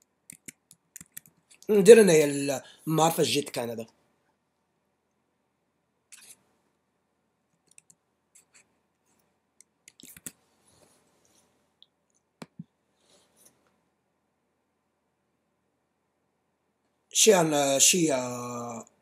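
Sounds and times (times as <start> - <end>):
keyboard typing: 0.3 - 1.7, 7.6 - 8.7, 9.6 - 10.4
mouse clicks: 0.3 - 1.7, 7.6 - 8.6, 9.6 - 10.4, 11.8 - 12.7.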